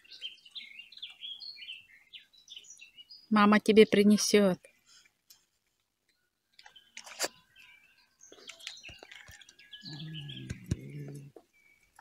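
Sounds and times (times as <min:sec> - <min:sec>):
small birds chirping: 0:00.0 - 0:12.0
hen calling: 0:09.8 - 0:11.4.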